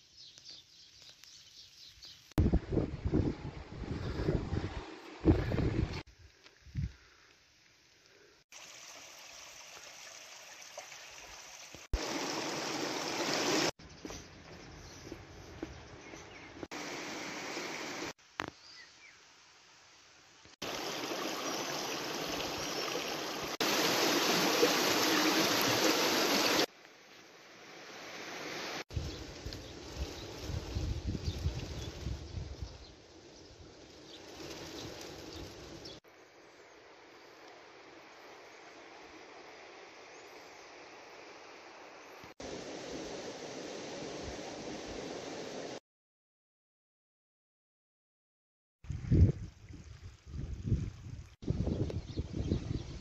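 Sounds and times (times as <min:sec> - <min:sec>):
wind rushing over microphone: 0:02.4 - 0:06.1, 0:29.0 - 0:32.9, 0:48.8 - 0:53.0
stream rushing over stones: 0:08.5 - 0:13.7, 0:16.7 - 0:18.2, 0:20.6 - 0:26.7.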